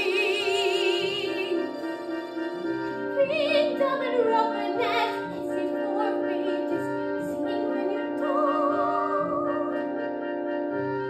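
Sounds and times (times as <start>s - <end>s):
backing track of held chords: 0.0s - 11.0s
woman singing soprano: 3.2s - 9.8s.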